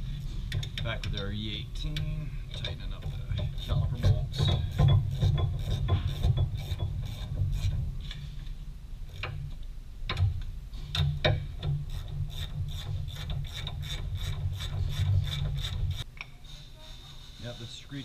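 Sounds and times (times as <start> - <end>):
ratchet wrench clicking: 1.9 - 8.2, 10.9 - 16.1.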